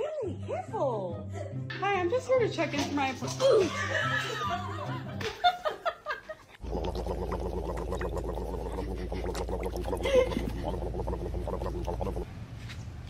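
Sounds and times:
horse lips flapping wetly: 6.6s - 12.3s
steady low hum: 6.6s - 12.4s.

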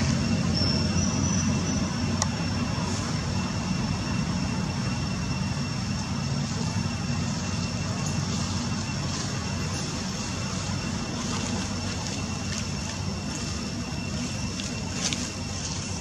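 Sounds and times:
high-pitched whine: 0.0s - 16.0s
low outdoor rumble: 0.0s - 16.0s.

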